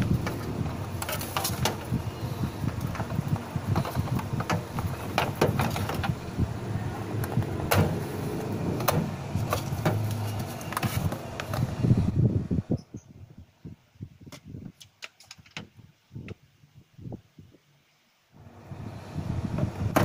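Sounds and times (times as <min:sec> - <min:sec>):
steady low rumble: 0:00.0 - 0:12.9.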